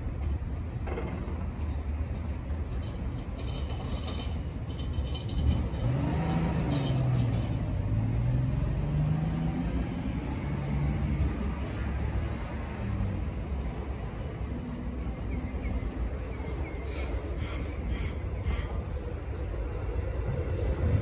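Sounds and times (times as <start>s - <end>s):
electric train rumble: 13.1s - 21.0s.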